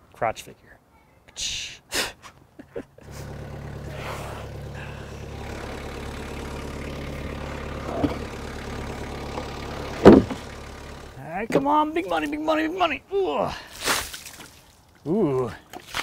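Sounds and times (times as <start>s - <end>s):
engine idling: 3.0s - 12.9s
loud knock: 10.0s - 10.5s.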